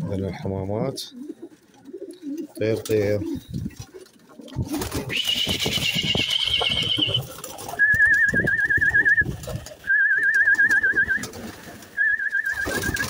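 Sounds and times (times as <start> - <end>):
pigeons cooing: 1.0 - 13.0
wings fluttering: 1.4 - 13.0
warbling whistle: 5.1 - 11.3, 12.0 - 13.0.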